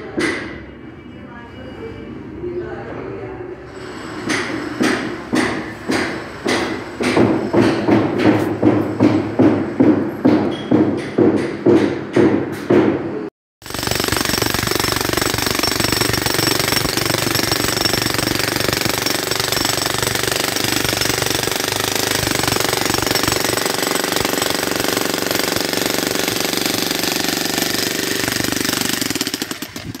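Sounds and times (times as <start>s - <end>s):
power tool hammering rapidly: 4.2s - 30.0s
knocks: 4.3s - 13.0s.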